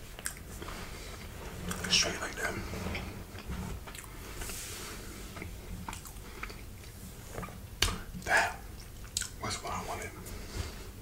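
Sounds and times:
person chewing food: 0.0 - 1.8, 2.9 - 9.4
wet mouth clicks and smacks: 5.4 - 9.4.

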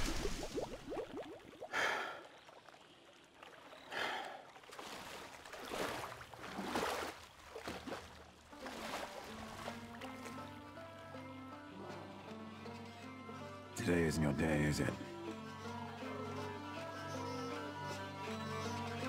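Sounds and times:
man breathing heavily: 1.7 - 2.3, 3.9 - 4.4.

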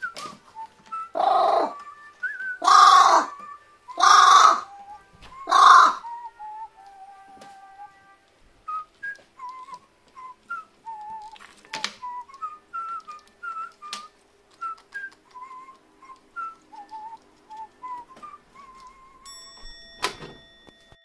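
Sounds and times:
low musical accompaniment: 0.0 - 21.0
whistled melody: 0.0 - 21.0
high held tones: 15.4 - 21.0.

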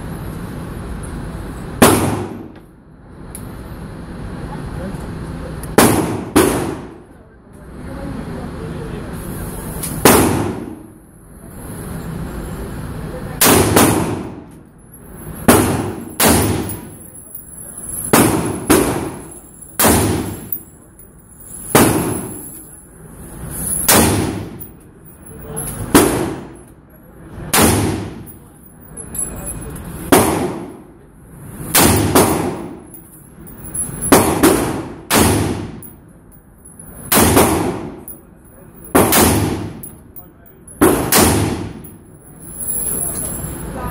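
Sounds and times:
rifle shots echoing indoors: 5.8 - 7.1, 13.4 - 14.5, 15.5 - 17.0, 18.1 - 20.6, 27.5 - 28.3, 31.7 - 32.8, 34.1 - 35.9, 37.1 - 38.2, 38.9 - 40.0, 40.8 - 42.0.

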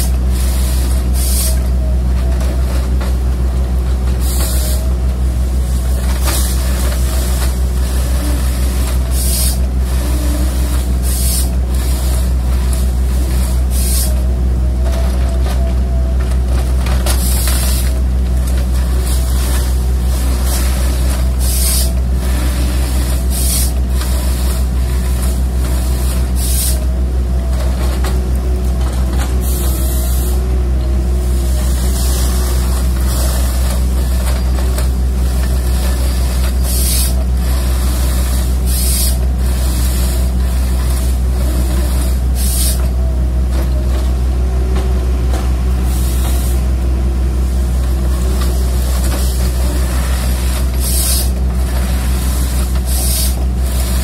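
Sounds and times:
diesel engine under load: 0.0 - 54.0
short hissing bursts: 0.4 - 1.6, 50.0 - 51.3, 52.4 - 54.0.

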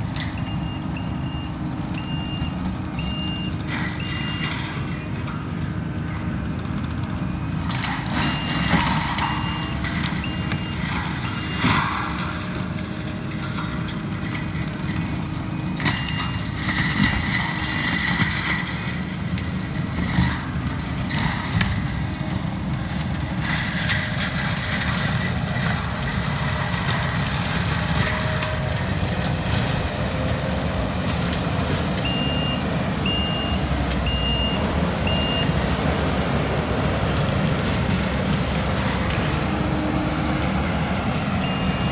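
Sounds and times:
diesel engine and mulcher running: 0.0 - 41.9
backup alarm beeping: 0.4 - 4.6, 32.0 - 35.6, 41.4 - 41.9.

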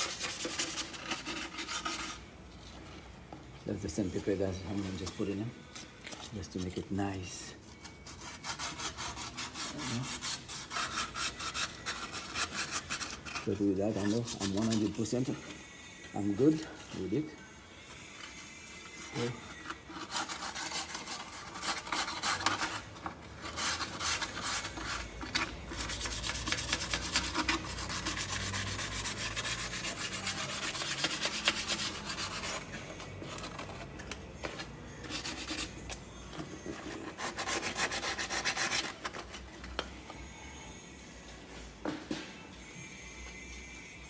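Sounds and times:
sandpaper rubbing on metal: 0.0 - 2.3, 8.0 - 15.1, 19.0 - 33.8, 34.9 - 35.9, 36.7 - 39.4.

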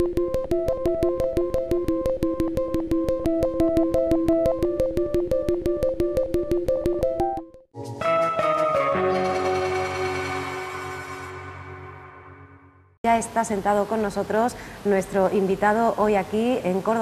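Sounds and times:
fast click beat: 0.0 - 7.5
synthesizer jingle: 0.0 - 13.0.

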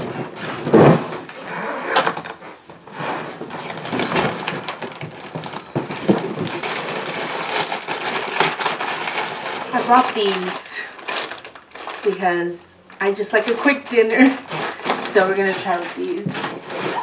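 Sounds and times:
luggage bumps and knocks: 0.0 - 1.3
rustling of contents: 0.0 - 17.0.

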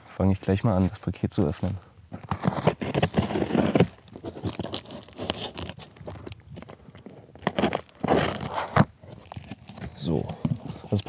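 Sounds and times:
cardboard crackling and scratching: 2.1 - 11.0
knife slitting packing tape: 2.4 - 5.9.

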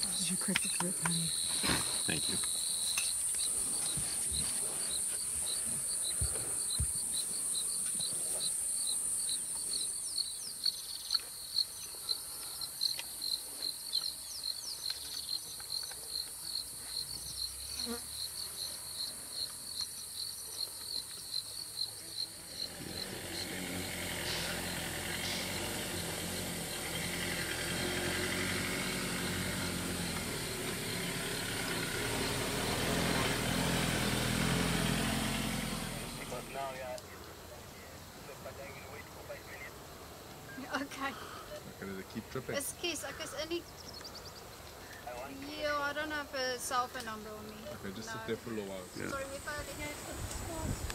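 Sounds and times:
vehicle engine rumbling: 0.0 - 12.6, 22.0 - 37.0
insects chirping: 0.0 - 50.9.

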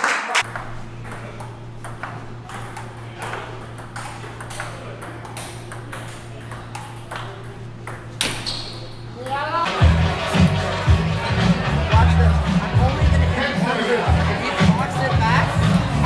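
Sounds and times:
table tennis ball clicking: 0.4 - 8.6.

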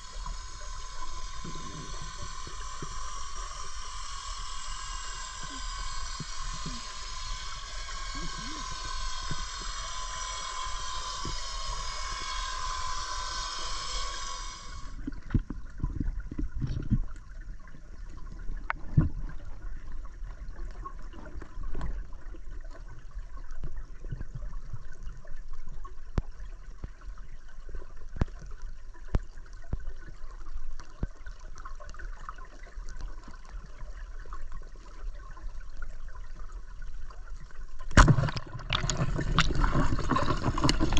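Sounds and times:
high many-toned whine: 0.0 - 15.0
muffled underwater wash: 0.0 - 40.9.

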